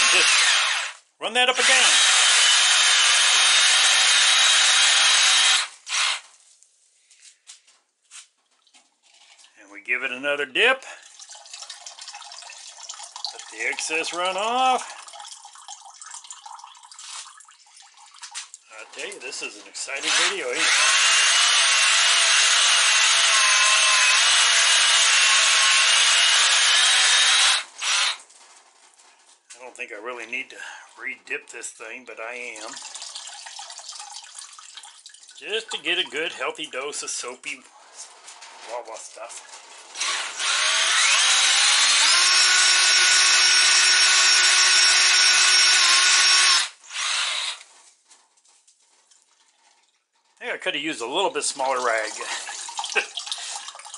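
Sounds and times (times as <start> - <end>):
hand drill running: 0.0 - 1.0, 1.6 - 6.2, 20.0 - 28.2, 40.0 - 47.7.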